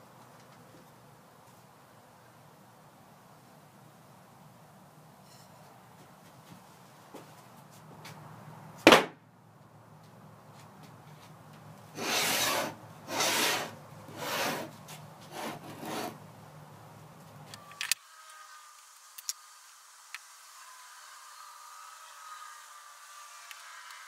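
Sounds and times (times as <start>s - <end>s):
sharp knock: 8.9s - 9.2s
wood scraping on wood: 12.0s - 16.2s.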